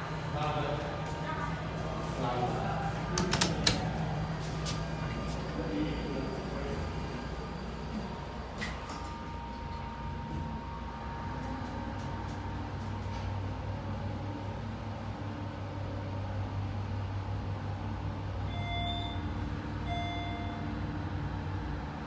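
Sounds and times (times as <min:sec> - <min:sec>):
elevator humming: 0:00.0 - 0:22.0
short electronic chime tones: 0:18.5 - 0:20.7.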